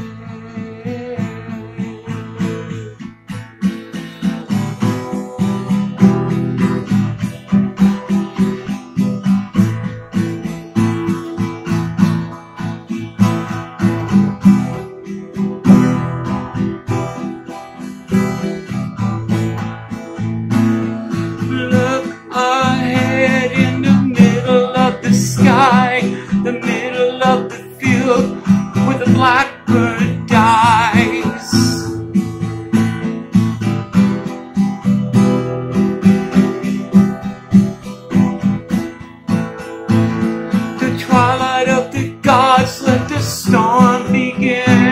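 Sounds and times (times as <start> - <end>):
man singing: 0.0 - 3.1, 21.4 - 32.0, 40.8 - 44.9
acoustic guitar strumming: 0.0 - 44.9.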